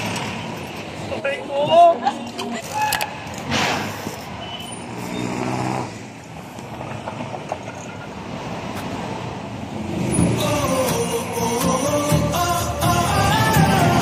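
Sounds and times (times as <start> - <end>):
traffic rumble: 0.0 - 14.0.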